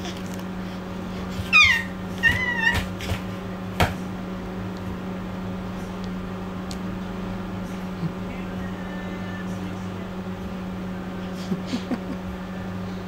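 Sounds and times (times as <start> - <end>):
baby squealing: 1.4 - 3.2.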